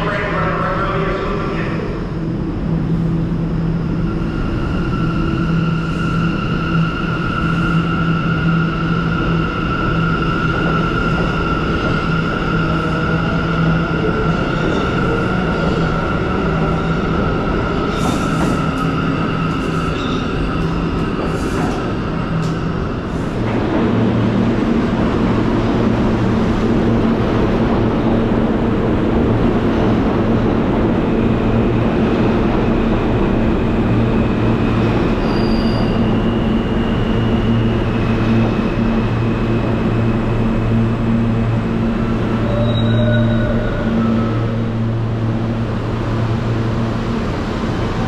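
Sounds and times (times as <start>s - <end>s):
subway train wheel and rail noise: 0.0s - 48.0s
high wheel squeals: 35.1s - 37.8s, 42.4s - 44.4s.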